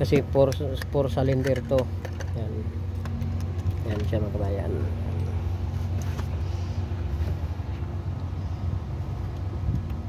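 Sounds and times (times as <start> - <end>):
engine humming: 0.0 - 10.0.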